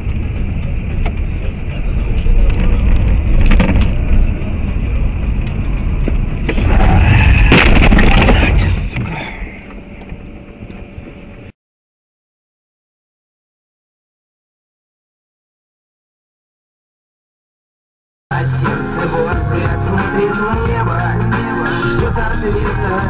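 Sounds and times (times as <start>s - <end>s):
road and engine drone: 0.0s - 11.6s, 18.3s - 23.0s
car collision: 6.4s - 9.2s.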